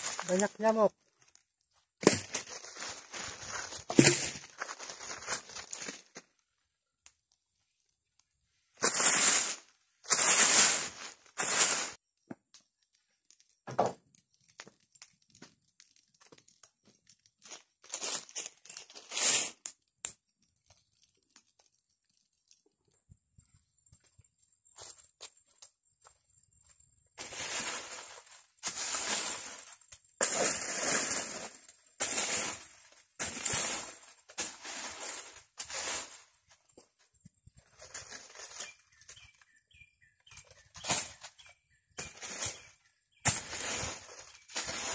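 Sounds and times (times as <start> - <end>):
dry leaves rustling and crunching: 0.0 - 1.4, 2.0 - 6.3, 8.8 - 12.0, 17.4 - 19.6, 27.2 - 36.4, 37.8 - 39.4, 40.3 - 44.9.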